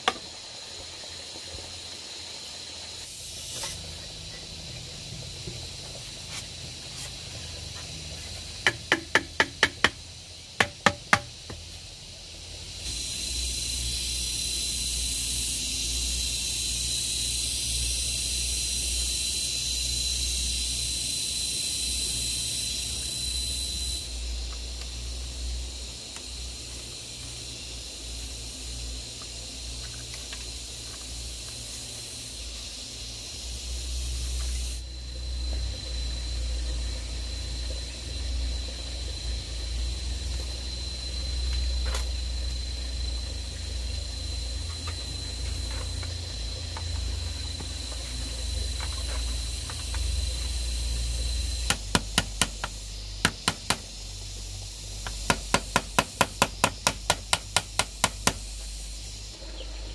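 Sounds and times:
faint high insect buzz: 0.0s - 59.9s
hand tool knocking on bamboo: 8.6s - 10.0s, 10.6s - 11.7s, 51.7s - 53.9s, 55.0s - 58.4s.

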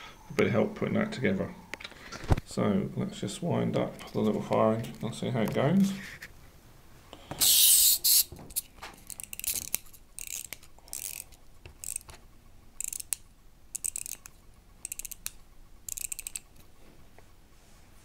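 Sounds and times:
clockwork motor ratcheting clicks: 8.1s - 12.2s, 12.8s - 16.6s.

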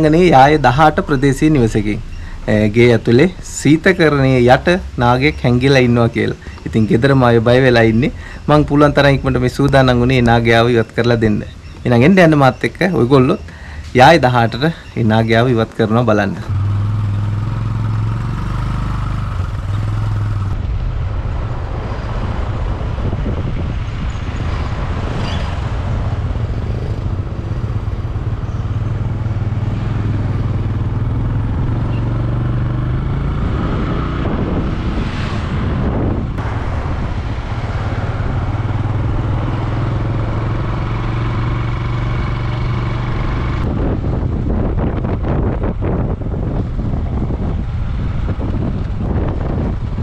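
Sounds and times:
motorcycle engine running: 16.5s - 20.6s, 26.1s - 33.4s, 37.5s - 45.0s.

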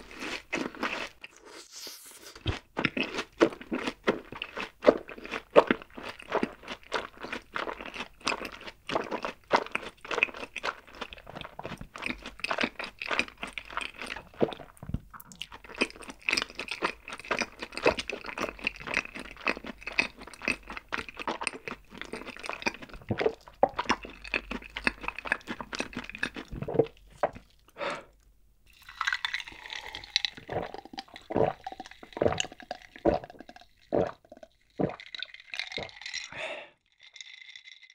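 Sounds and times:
crunchy food chewing: 0.0s - 27.7s
gulping a drink: 2.4s - 28.1s, 28.7s - 37.8s.

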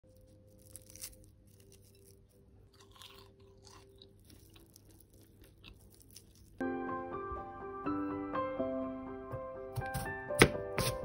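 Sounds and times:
potato crust crunching: 0.0s - 6.6s.

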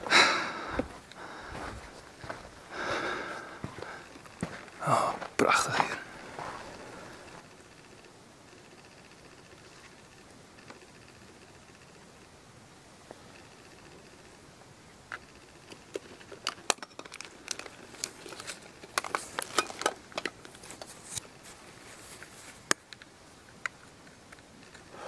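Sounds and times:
plastic bags crinkling: 16.0s - 22.6s.

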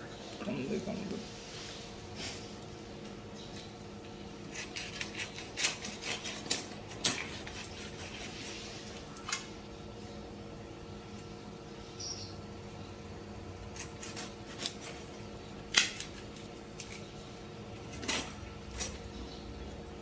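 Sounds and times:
steady low hum: 0.0s - 20.0s
knife cutting raw chicken: 4.5s - 8.6s.

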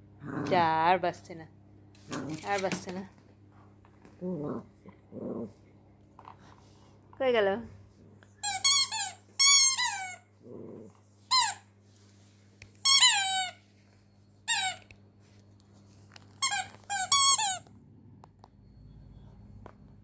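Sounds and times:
squeak toy squeaking: 8.4s - 10.2s, 12.8s - 13.6s, 14.5s - 14.8s, 16.4s - 17.6s.

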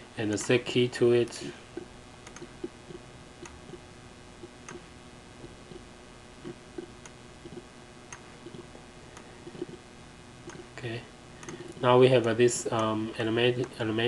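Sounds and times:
computer mouse clicks: 1.8s - 3.8s, 4.4s - 5.8s, 6.4s - 9.8s, 10.4s - 10.7s, 11.4s - 12.9s.

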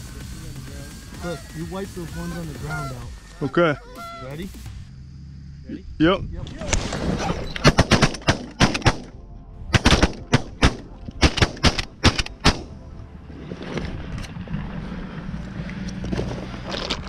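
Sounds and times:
shotgun blasts: 7.6s - 12.8s.

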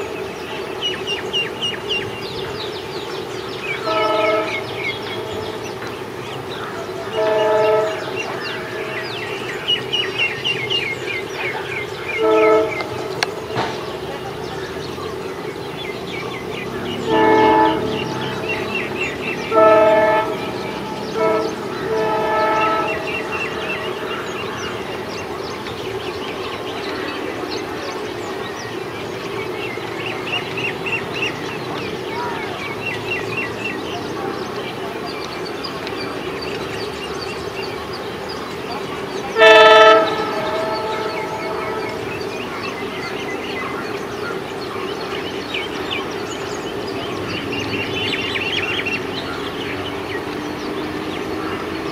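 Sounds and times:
birds chirping: 0.0s - 51.9s
locomotive horn blasts: 3.7s - 9.8s, 12.0s - 14.0s, 16.5s - 25.1s, 39.2s - 42.8s.

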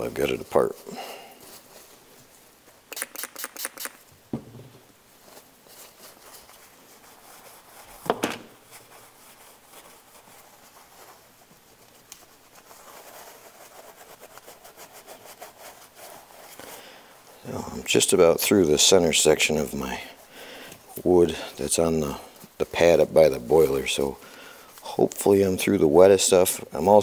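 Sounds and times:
paper towel scrubbing metal: 5.4s - 27.0s.

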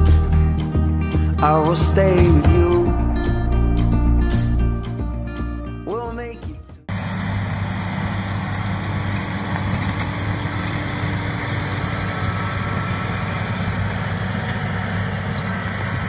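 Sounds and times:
tractor engine drone: 6.9s - 16.0s.

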